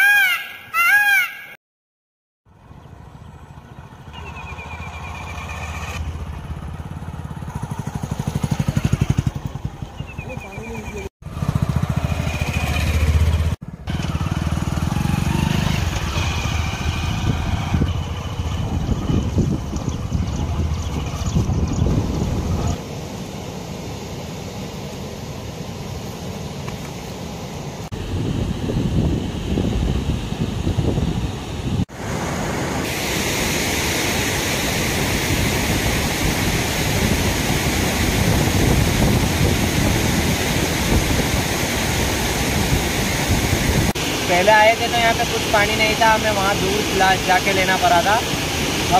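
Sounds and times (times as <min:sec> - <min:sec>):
small engine running: 0:02.9 - 0:10.6, 0:11.2 - 0:21.8
wind buffeting microphone: 0:17.0 - 0:22.8, 0:27.9 - 0:31.9, 0:35.3 - 0:44.0
stream water rushing: 0:31.9 - 0:48.9.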